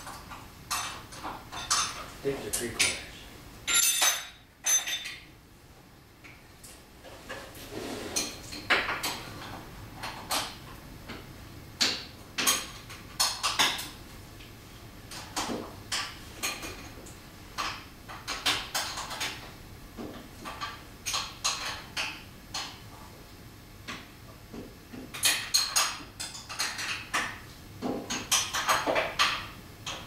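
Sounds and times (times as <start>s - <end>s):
metal hand tools clinking: 3.7s - 5.2s.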